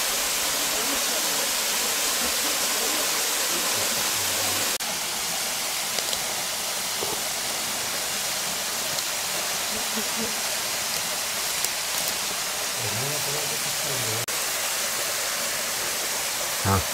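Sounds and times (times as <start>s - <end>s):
river rushing over stones: 0.0s - 16.9s.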